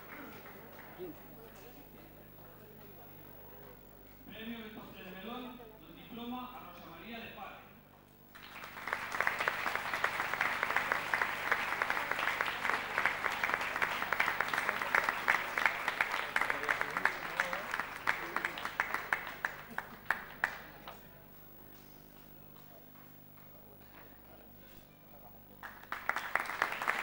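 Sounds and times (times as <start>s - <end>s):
audience applauding: 0.0s - 2.0s, 8.3s - 21.0s, 25.6s - 27.0s.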